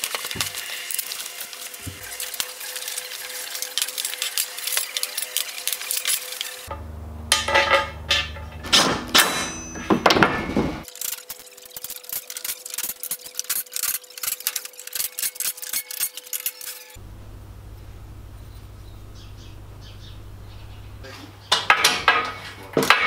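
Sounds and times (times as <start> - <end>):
low hum: 6.4 - 10.8, 14.8 - 21.5.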